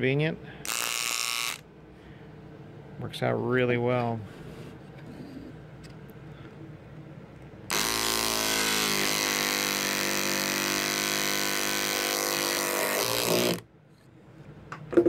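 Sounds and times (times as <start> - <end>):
small electric saw cutting: 0.7 - 1.6, 7.7 - 13.6.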